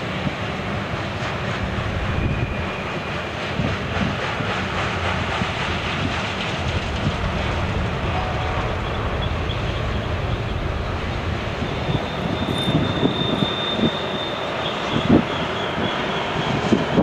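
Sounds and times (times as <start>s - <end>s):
train wheels rumbling on rail: 0.0s - 17.0s
wheel flange squeal: 8.7s - 16.9s.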